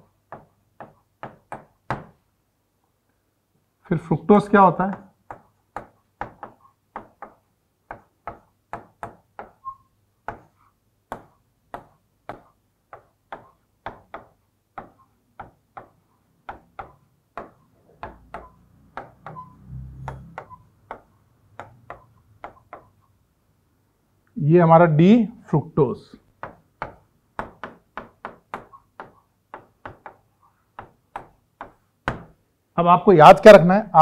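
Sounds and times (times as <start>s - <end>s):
pen tapping writing board: 0.2s - 2.2s, 4.8s - 23.0s, 26.3s - 32.4s.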